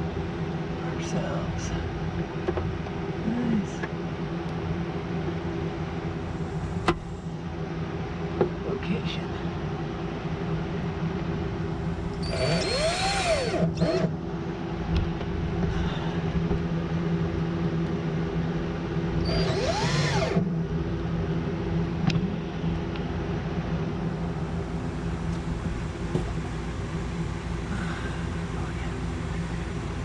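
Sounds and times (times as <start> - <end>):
steady low hum: 0.0 - 30.0
cordless drill whining: 12.2 - 14.1, 19.2 - 20.4.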